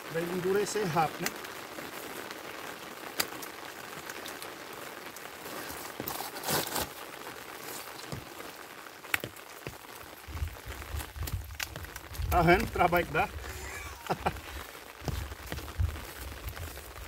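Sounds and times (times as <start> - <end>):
light rain pattering: 0.0 - 17.0
mud squelching and scraping: 5.4 - 7.0, 10.2 - 17.0.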